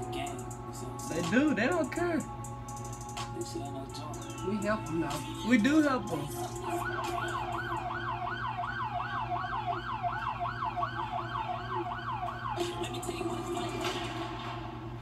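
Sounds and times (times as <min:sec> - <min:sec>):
emergency siren yelping: 0:05.4 - 0:14.1.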